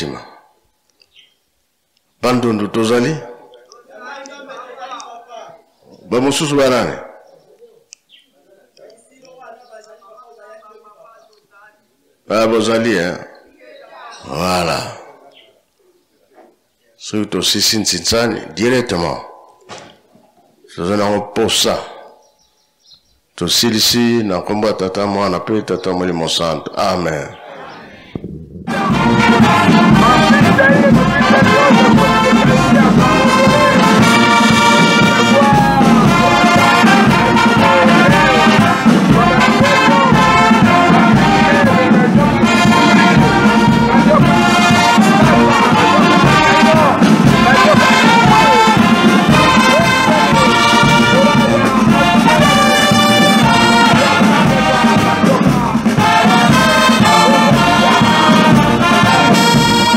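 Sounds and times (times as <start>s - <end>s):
brass band playing: 28.3s - 59.9s.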